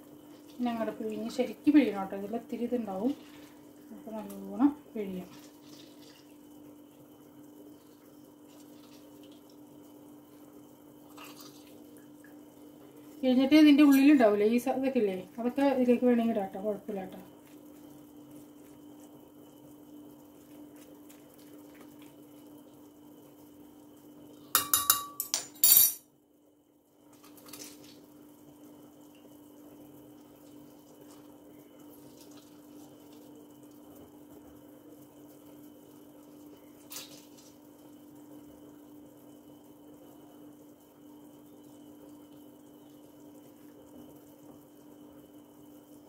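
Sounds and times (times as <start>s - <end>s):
spoon clinking against glass jug: 24.6s - 26.0s.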